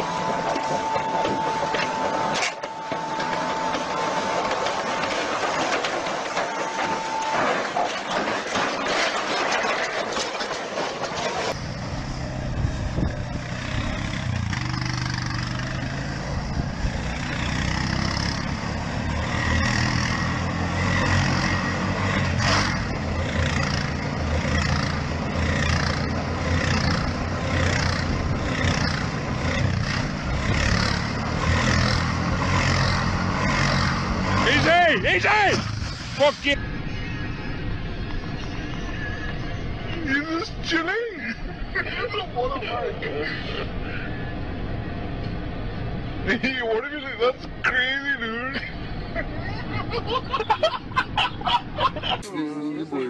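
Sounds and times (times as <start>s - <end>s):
quad bike engine running: 12.5s - 21.4s, 22.4s - 34.7s.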